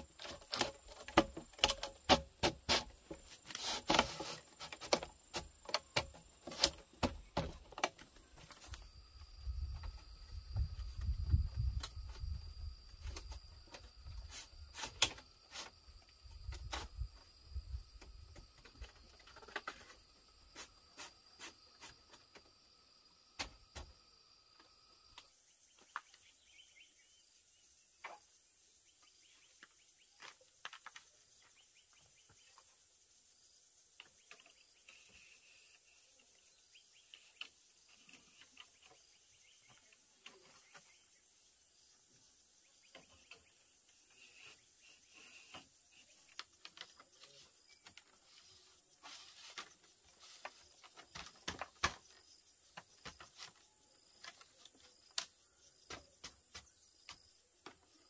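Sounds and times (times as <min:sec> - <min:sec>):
bamboo slats knocking: 0:00.1 - 0:08.1.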